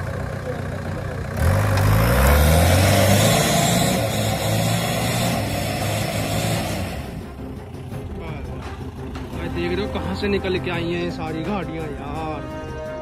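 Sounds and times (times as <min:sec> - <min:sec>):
jeep engine revving: 0:00.0 - 0:07.8.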